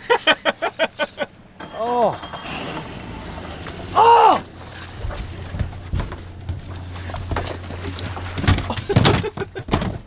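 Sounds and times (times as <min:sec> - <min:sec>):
boat engine idling: 0:02.9 - 0:09.0
thumps on fiberglass deck: 0:08.1 - 0:10.0.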